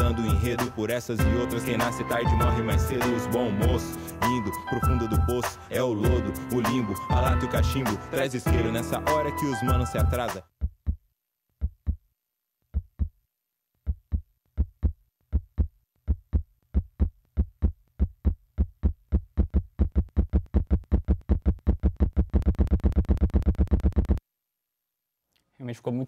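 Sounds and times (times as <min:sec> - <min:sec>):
heartbeat thumps: 0:10.0 - 0:11.0, 0:11.6 - 0:12.0, 0:12.8 - 0:13.2, 0:13.9 - 0:24.2.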